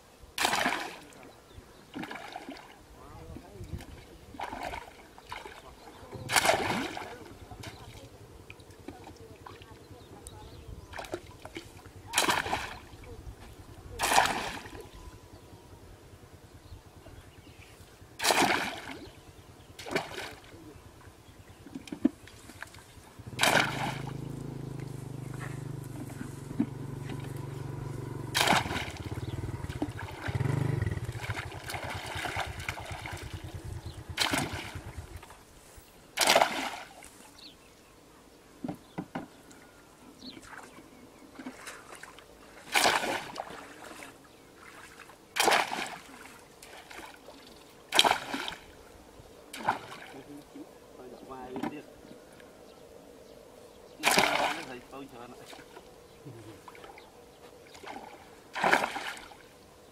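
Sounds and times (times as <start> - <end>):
low steady hum: 0.0 - 59.9
pole splashing in shallow water: 0.4 - 1.2, 1.9 - 9.8, 10.9 - 15.0, 18.2 - 20.8, 21.6 - 35.4, 36.2 - 37.2, 40.4 - 48.8, 49.5 - 50.5, 54.0 - 55.9, 57.7 - 59.5.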